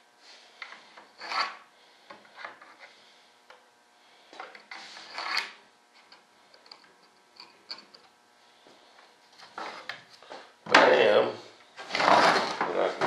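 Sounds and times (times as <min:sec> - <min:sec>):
hand tool rasping on model parts: 0:01.2 - 0:01.6.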